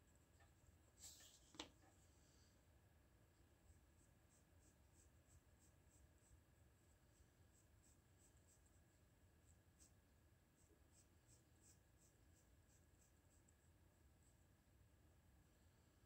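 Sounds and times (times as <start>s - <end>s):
faint steady hum: 0.0s - 16.0s
pencil sketching on paper: 3.6s - 13.5s.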